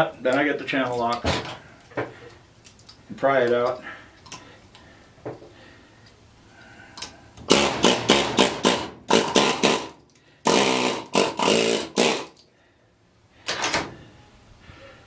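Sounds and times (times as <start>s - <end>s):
air chisel hammering: 7.5s - 12.4s.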